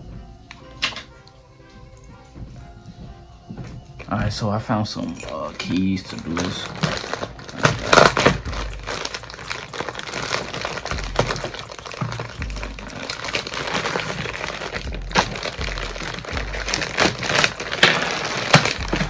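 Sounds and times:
background music: 0.0 - 19.0
plastic bag crinkling and tearing: 5.3 - 19.0.

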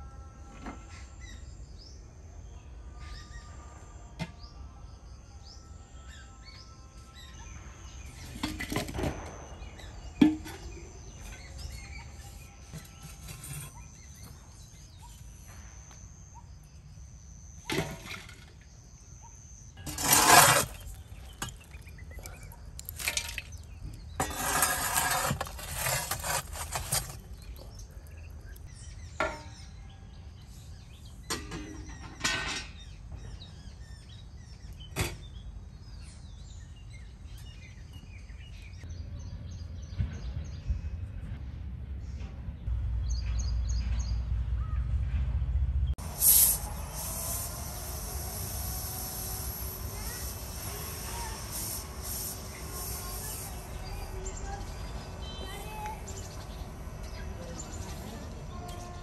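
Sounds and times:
handling and rustling noise: 19.9 - 27.8
birds chirping: 46.1 - 59.0.

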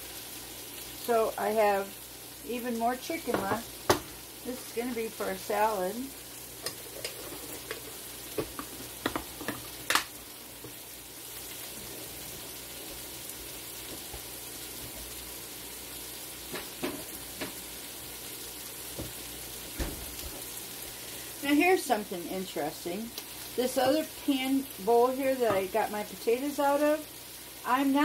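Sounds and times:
food sizzling in a skillet: 0.0 - 28.0.

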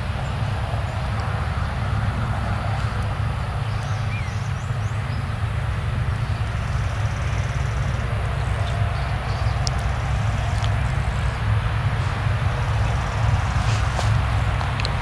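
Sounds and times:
combine harvester droning: 0.0 - 15.0.

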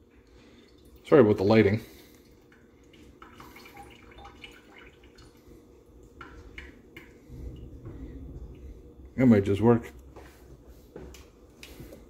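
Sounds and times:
low hum: 5.1 - 12.0.

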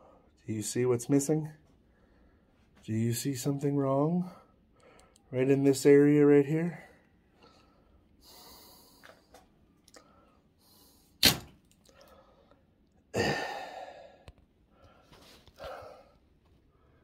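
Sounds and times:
sharp thunk: 11.2 - 11.6.

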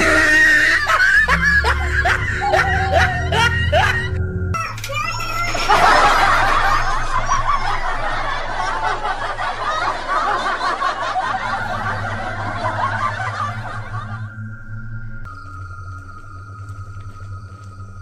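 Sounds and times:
canned laughter: 0.0 - 4.2, 5.3 - 14.3.

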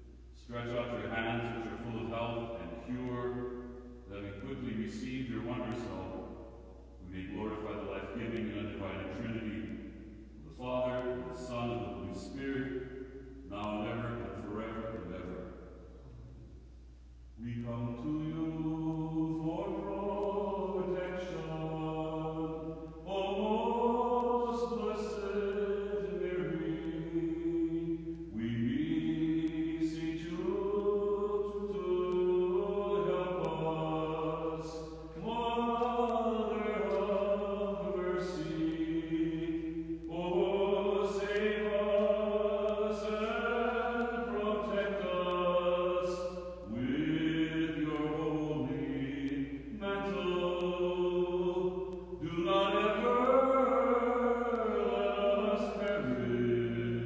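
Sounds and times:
man chanting a hymn: 0.0 - 16.1, 17.4 - 57.0.

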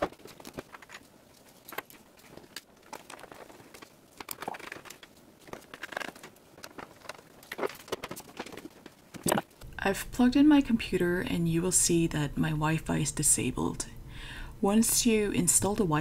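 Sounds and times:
disposable gloves crinkling: 0.0 - 9.2.

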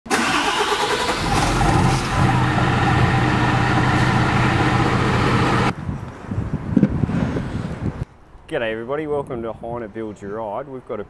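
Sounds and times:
diesel truck engine idling: 0.1 - 5.7.

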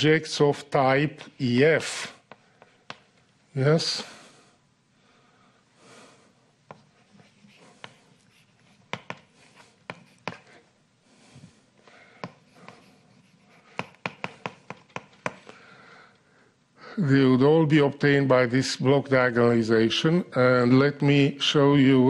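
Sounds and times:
chalk tapping and scratching on blackboard: 2.2 - 3.1, 6.7 - 10.6, 12.1 - 15.5.

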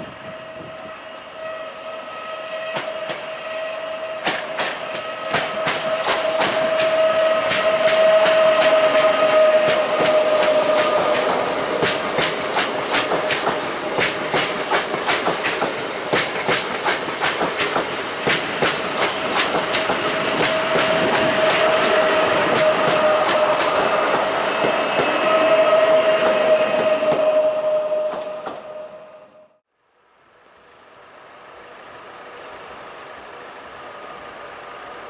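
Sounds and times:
electric train whine: 0.0 - 35.0
train wheels clicking over rail joints: 2.7 - 3.4, 4.1 - 25.3.

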